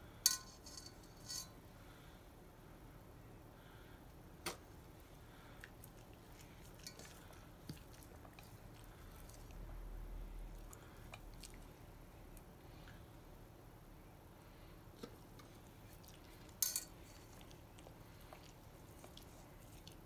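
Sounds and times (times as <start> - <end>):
metal spoon clinking bowl: 0.3 - 1.6, 6.8 - 7.2, 16.6 - 17.3
dog chewing and licking: 5.6 - 9.8, 15.6 - 20.0.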